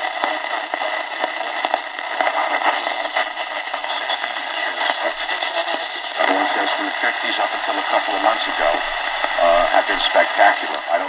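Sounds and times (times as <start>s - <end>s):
radio static hissing and crackling: 0.0s - 11.0s.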